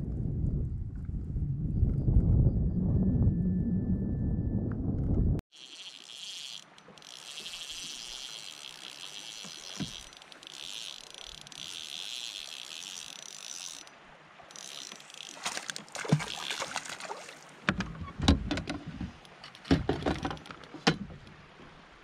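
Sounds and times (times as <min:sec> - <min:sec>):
fishing reel whirring: 0:05.5 - 0:17.4.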